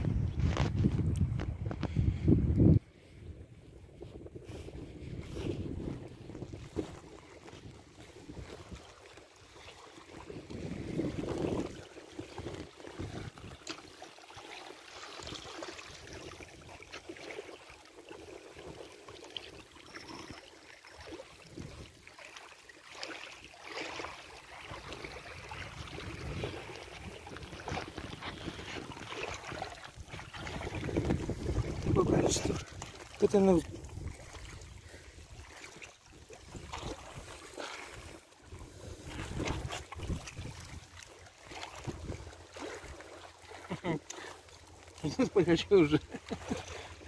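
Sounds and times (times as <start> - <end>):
wind on microphone: 0.0 - 8.9, 10.1 - 13.6, 24.7 - 35.5, 36.4 - 41.0, 41.6 - 42.4
small waves lapping: 2.8 - 47.0
water splashing off a net: 8.4 - 19.5, 21.0 - 31.9, 35.4 - 38.2.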